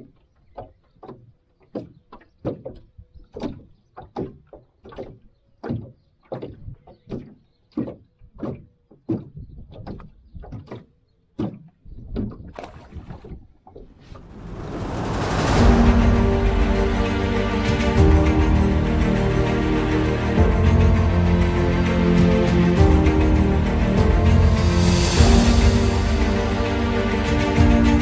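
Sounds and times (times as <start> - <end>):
music: 14.1 - 28.0.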